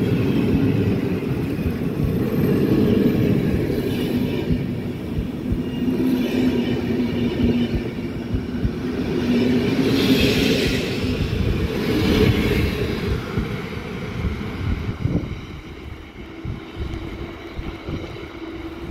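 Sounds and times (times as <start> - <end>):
train wheels rumbling on rails: 0.0 - 18.9.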